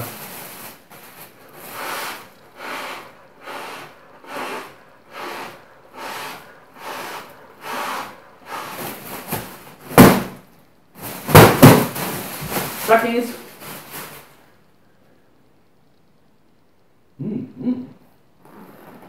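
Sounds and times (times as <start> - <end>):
plastic bag rustling: 0.0 - 14.6.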